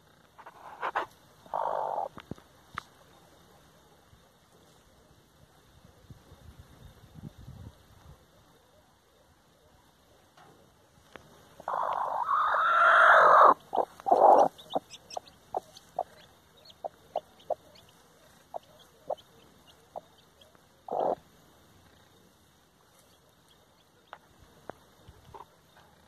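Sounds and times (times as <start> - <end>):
hen clucking softly: 0.4 - 2.3, 11.5 - 22.1
chicks peeping: 0.9 - 2.2, 11.6 - 21.2
hen calling loudly: 1.5 - 2.1, 11.6 - 17.8, 20.9 - 21.2.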